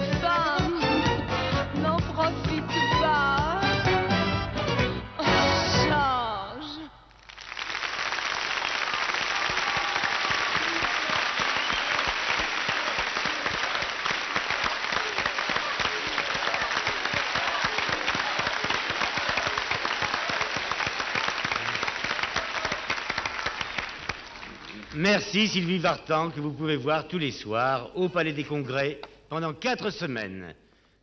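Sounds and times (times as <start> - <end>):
audience applauding: 7.1 - 25.8.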